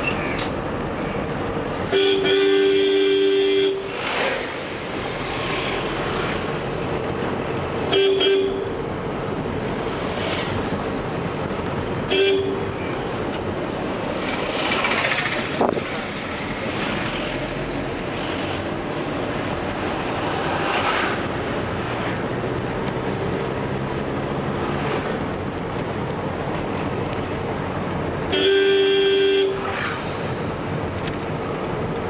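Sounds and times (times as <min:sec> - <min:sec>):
car cabin road and engine noise: 0:00.0 - 0:32.0
car horn toots: 0:01.9 - 0:03.9, 0:07.9 - 0:08.8, 0:12.1 - 0:12.8, 0:28.3 - 0:29.7.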